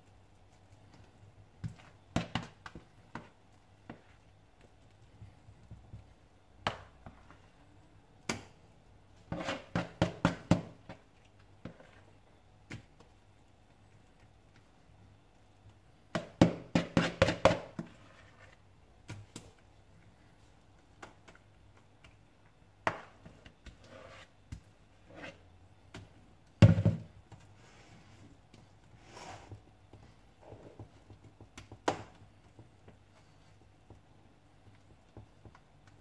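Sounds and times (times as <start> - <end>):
spoon scraping a bowl: 9.3 - 9.9, 23.8 - 24.3.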